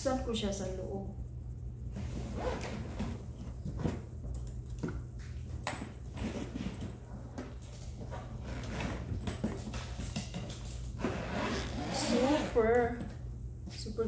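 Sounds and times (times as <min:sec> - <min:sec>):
suitcase zipper pulled open: 0:02.0 - 0:03.2, 0:11.0 - 0:12.6.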